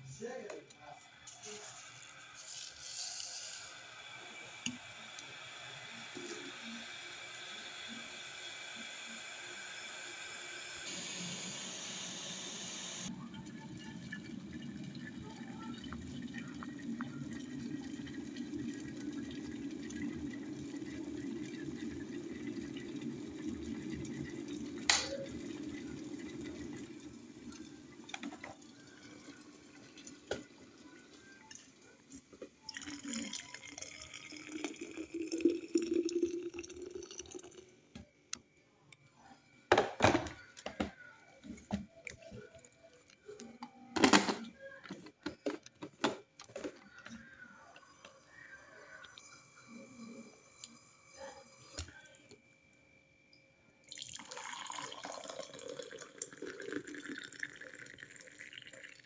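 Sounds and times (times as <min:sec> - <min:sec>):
electric kettle boiling water: 0:01.2 - 0:38.1, 0:39.7 - 0:42.4, 0:53.8 - 0:59.0.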